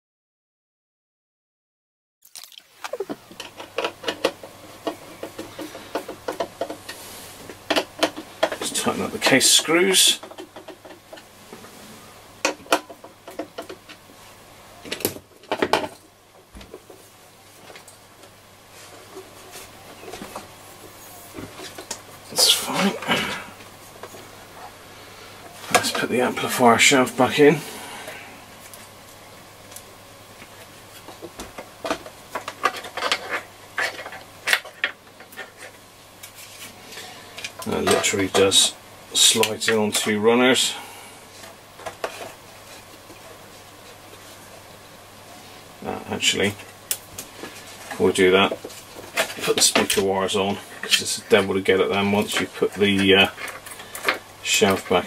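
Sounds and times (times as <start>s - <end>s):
small parts clicking and rattling: 31.8s - 35.8s.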